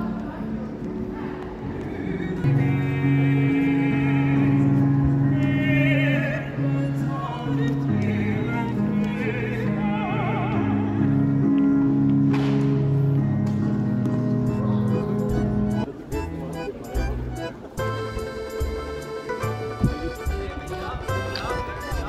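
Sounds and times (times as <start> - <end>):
man and woman singing opera: 0.0 - 11.3.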